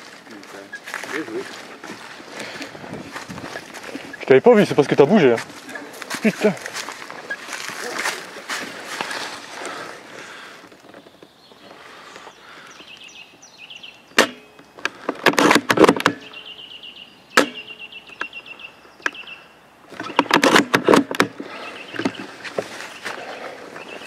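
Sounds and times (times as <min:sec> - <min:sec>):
dry leaves and twigs crunching: 0:00.0 - 0:13.2, 0:21.4 - 0:24.0
birds chirping: 0:00.0 - 0:15.2, 0:15.8 - 0:24.0.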